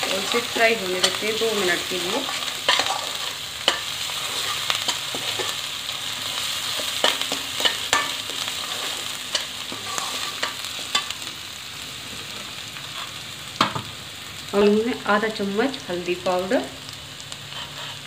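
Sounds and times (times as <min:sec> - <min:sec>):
metal spoon scraping a pan: 0:00.0 - 0:11.2, 0:12.8 - 0:13.2, 0:17.5 - 0:18.0
onion sizzling in hot oil: 0:00.0 - 0:18.0.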